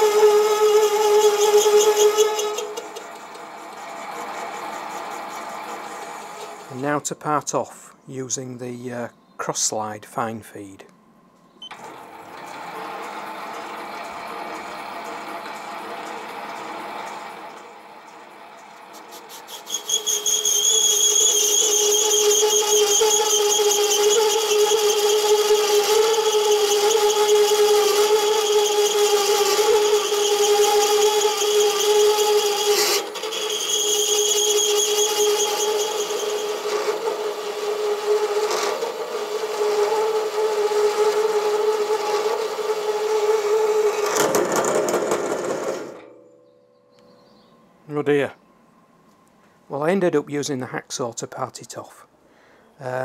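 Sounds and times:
lathe tool chattering and squealing: 0:00.0 - 0:06.8, 0:11.7 - 0:46.0
harsh metallic rattling: 0:11.8 - 0:46.4.

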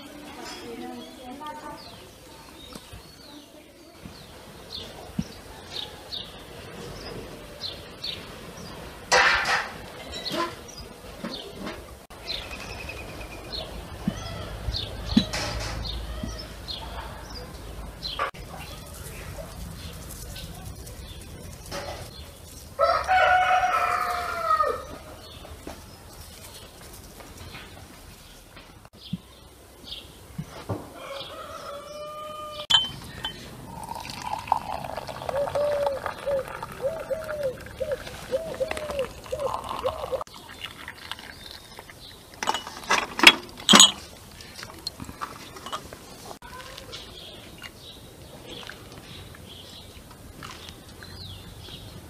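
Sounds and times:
songbirds chirping: 0:00.0 - 0:52.0
rooster crowing: 0:22.8 - 0:25.0, 0:31.0 - 0:32.7
tableware knocking on table: 0:32.7 - 0:33.4
water gurgling into glasses: 0:33.7 - 0:42.5.

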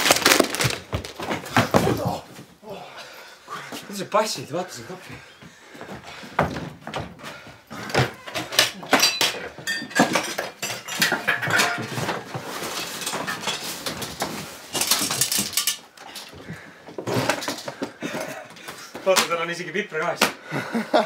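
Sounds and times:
small objects rattling: 0:00.0 - 0:02.2, 0:08.2 - 0:18.3.

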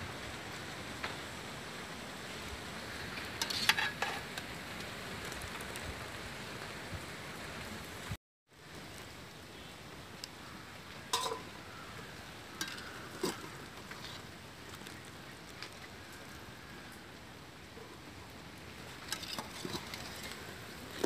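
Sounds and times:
water bubbling at the boil: 0:08.6 - 0:21.0
wire strainer clinking on pot: 0:11.1 - 0:11.5.

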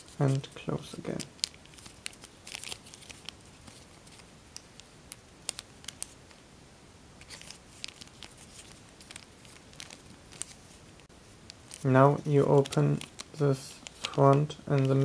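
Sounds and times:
foil paper crinkling: 0:01.0 - 0:04.3, 0:07.2 - 0:10.8, 0:11.5 - 0:15.0.

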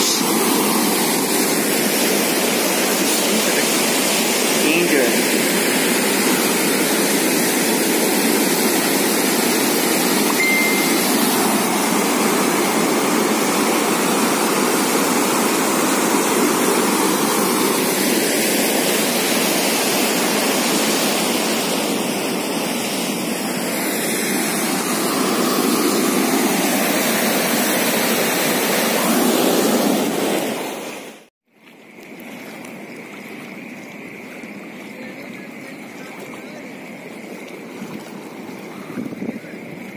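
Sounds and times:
floodwater rushing: 0:00.0 - 0:39.9.

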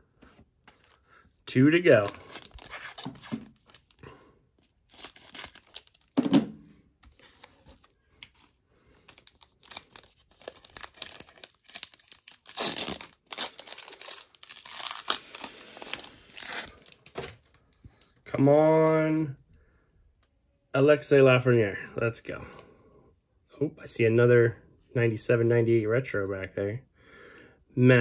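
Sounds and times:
foil wrapper crinkling and tearing: 0:01.8 - 0:04.0, 0:04.6 - 0:06.2, 0:07.1 - 0:17.6.

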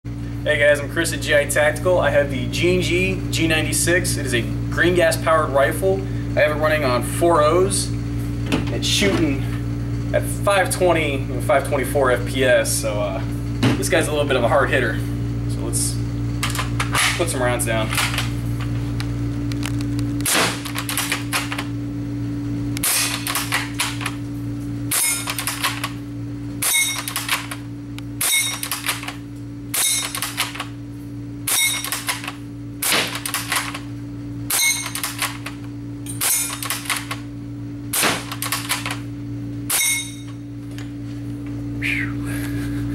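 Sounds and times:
airsoft rifle shots: 0:20.2 - 0:21.6, 0:22.8 - 0:24.1, 0:31.5 - 0:33.8, 0:37.9 - 0:39.0.

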